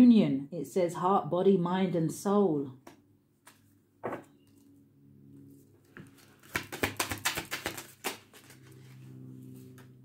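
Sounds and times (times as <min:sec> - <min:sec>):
cards shuffling clicks: 0:03.4 - 0:03.7, 0:06.0 - 0:09.0.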